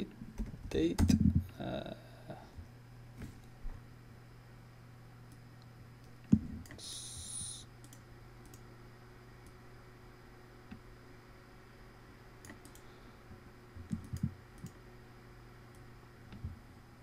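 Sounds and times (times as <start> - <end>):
low steady hum: 0.0 - 17.0
short high hiss: 6.8 - 7.7.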